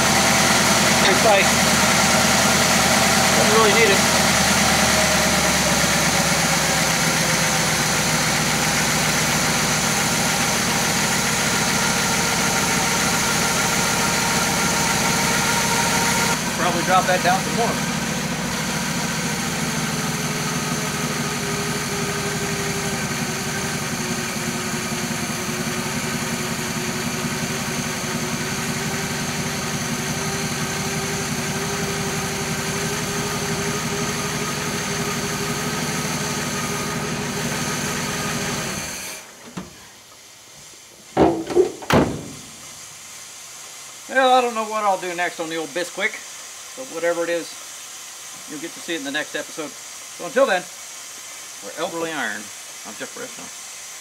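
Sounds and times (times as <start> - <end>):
car engine idling: 0.0 - 38.7
sharp knocks: 41.2 - 42.6.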